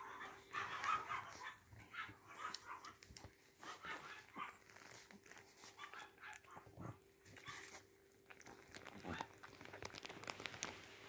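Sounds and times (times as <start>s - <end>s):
puppies squeaking and snuffling: 0.0s - 8.0s
faint steady hum: 0.0s - 11.0s.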